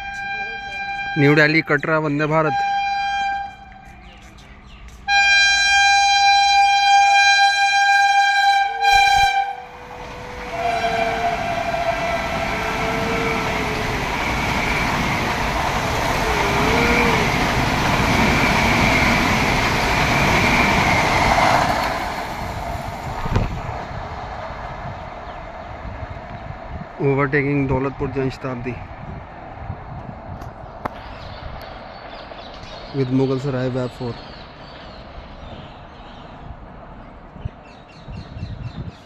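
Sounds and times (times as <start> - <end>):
train horn blasts: 0.0 - 1.7, 2.4 - 4.0, 5.1 - 14.5, 16.1 - 17.4
train passing rumble: 0.0 - 38.7.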